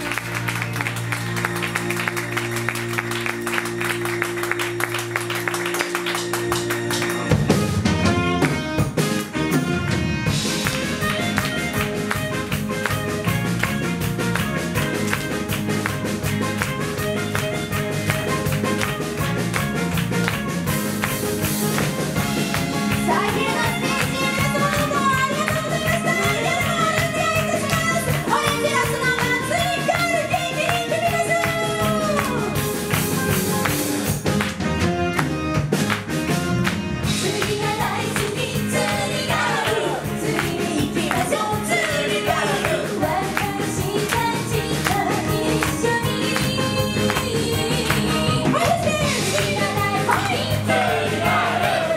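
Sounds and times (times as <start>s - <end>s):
saxophone: 0.0s - 33.6s
electric bass: 0.0s - 51.9s
live band music: 0.0s - 51.9s
drum kit beat: 1.6s - 51.9s.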